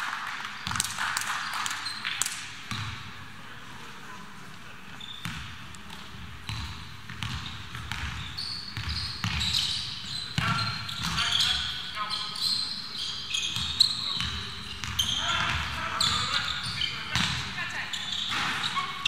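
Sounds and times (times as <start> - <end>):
crowd hum in a hall: 0.0 - 19.0
sneakers squeaking on floor: 0.6 - 3.0, 4.9 - 19.0
basketball dribbling thumps: 5.2 - 8.2.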